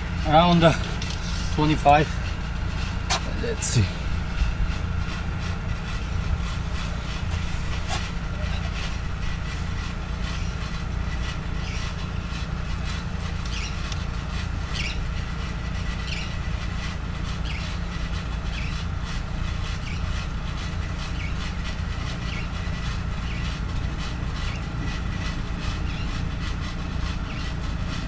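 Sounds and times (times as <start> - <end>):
steady low rumble: 0.0 - 28.0.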